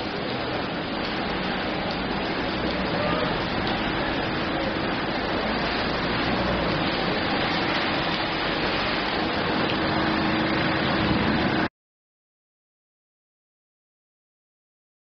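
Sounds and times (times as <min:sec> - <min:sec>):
rain pouring onto a puddle: 0:00.0 - 0:11.7.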